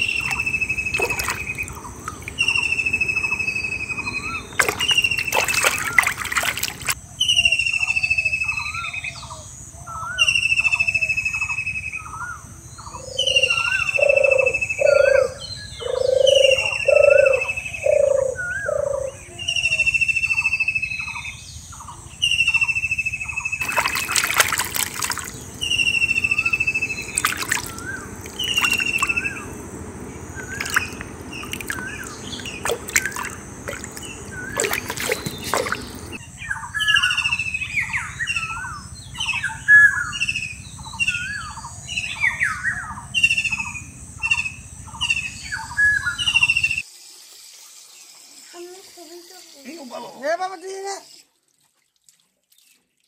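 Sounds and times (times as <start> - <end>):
bird falling call: 0.0 - 7.0, 13.0 - 19.1, 23.6 - 36.2
water trickling and sloshing: 0.0 - 7.0, 23.6 - 36.2, 51.2 - 53.0
low pulsing bird calls: 0.0 - 46.8.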